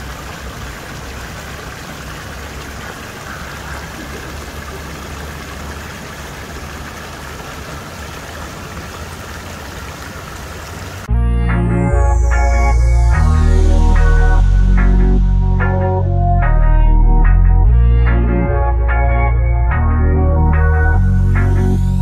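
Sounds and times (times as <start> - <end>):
flowing water rushing: 0.0 - 11.1
loud electronic music: 11.1 - 22.0.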